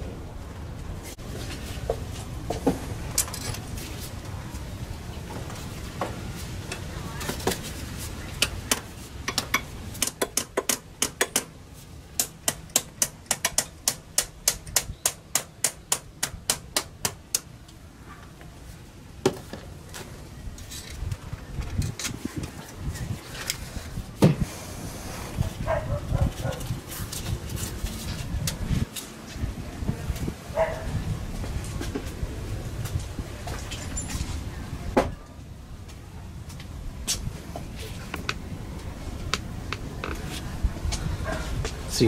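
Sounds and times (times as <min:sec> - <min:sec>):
hand tools clicking and scraping: 0:01.5 - 0:04.2, 0:06.6 - 0:17.8
sharp metal taps: 0:08.7 - 0:11.5.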